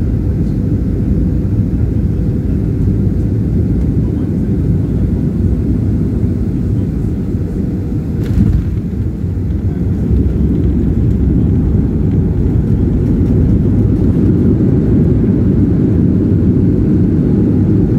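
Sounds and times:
aircraft cabin rumble: 0.0s - 17.9s.

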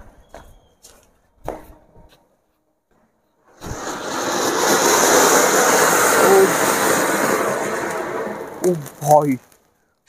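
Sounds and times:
firework fountain hissing: 3.5s - 9.7s.

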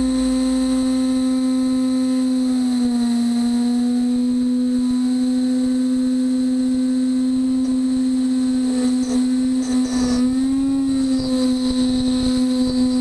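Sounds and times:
router spindle whining: 0.0s - 13.0s
scratchy metal cutting noise: 7.6s - 13.0s.

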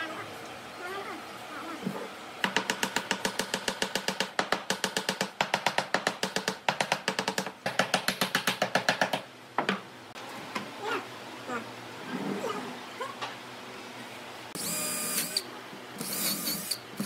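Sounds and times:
hammer tapping on wood: 2.4s - 9.8s.

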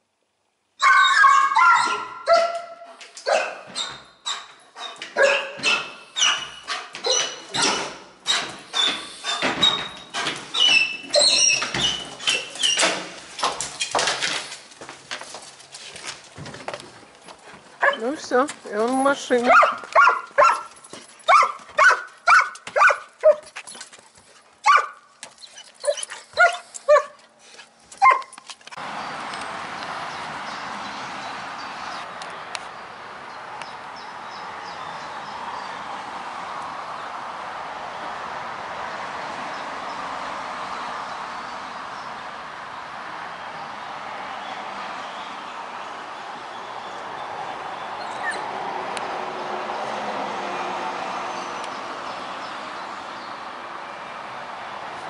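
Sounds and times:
dog barking and yelping: 0.8s - 7.7s, 11.1s - 11.6s, 17.8s - 18.1s, 19.5s - 20.7s, 21.3s - 23.5s, 24.6s - 27.2s, 28.0s - 28.4s.

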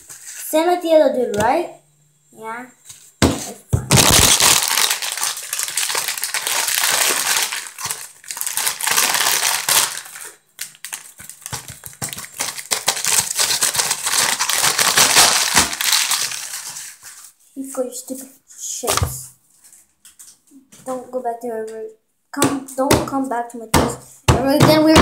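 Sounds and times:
chip bag crinkling: 3.9s - 17.2s
chips spilling onto paper towel: 3.9s - 17.2s.

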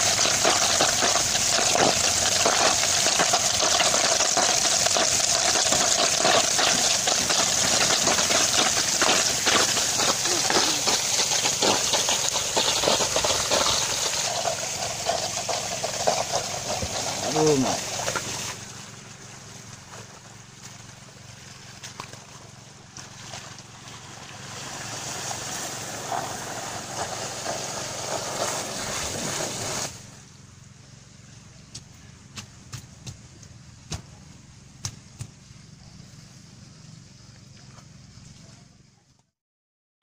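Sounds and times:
water gushing from a pipe: 0.0s - 30.2s
pump engine humming: 0.0s - 39.3s.

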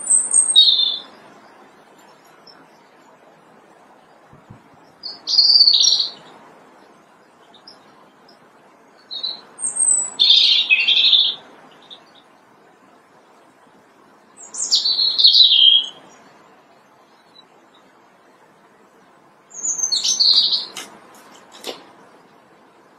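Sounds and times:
robin singing: 0.0s - 3.0s, 4.1s - 6.3s, 7.1s - 12.4s, 14.4s - 18.0s, 19.5s - 21.6s.

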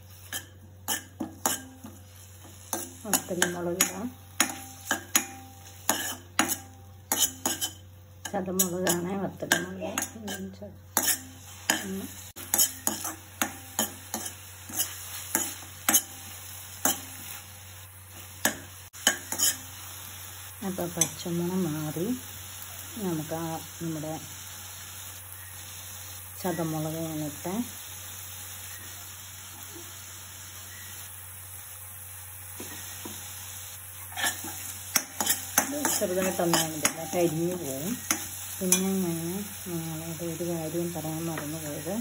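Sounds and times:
shallots sizzling in oil: 0.0s - 42.0s
spatula scraping a pan: 0.1s - 17.4s, 18.4s - 19.7s, 34.0s - 38.9s.

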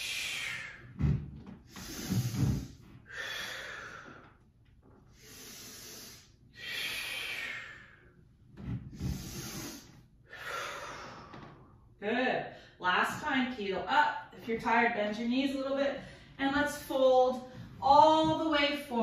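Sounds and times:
woman breathing hard: 1.7s - 4.4s, 5.2s - 8.2s, 9.0s - 11.6s.

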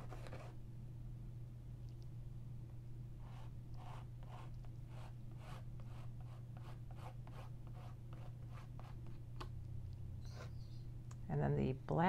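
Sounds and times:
steady low hum: 0.0s - 12.0s
chalk scratching on canvas: 3.2s - 9.2s.

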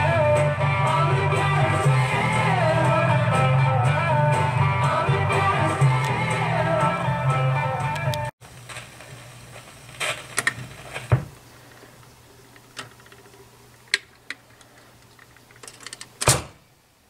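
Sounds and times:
record player motor hum: 7.9s - 17.0s.

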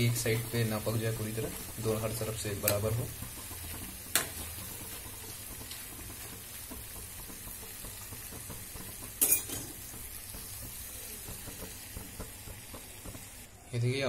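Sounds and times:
dough sizzling in hot oil: 0.0s - 14.0s
utensils clattering: 9.2s - 9.9s.

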